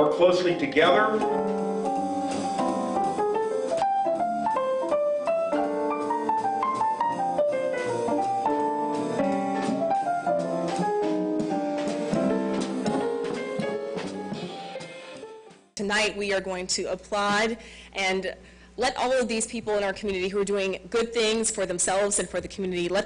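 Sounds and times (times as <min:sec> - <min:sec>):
piano melody over chords: 0:00.0 - 0:15.8.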